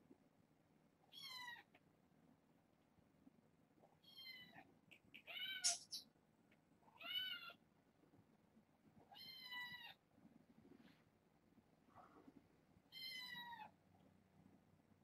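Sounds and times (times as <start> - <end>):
cat meowing: 5.3 - 5.9, 7.0 - 7.6, 9.1 - 10.0, 12.9 - 13.7.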